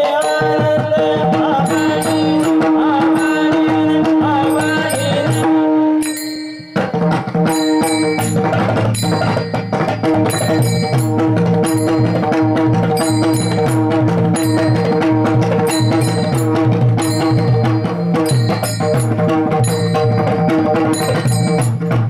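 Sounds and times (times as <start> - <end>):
steady held tones: 0.0 - 22.0
barrel drum strokes: 1.7 - 22.0
metal hand cymbal clashes: 4.5 - 22.0.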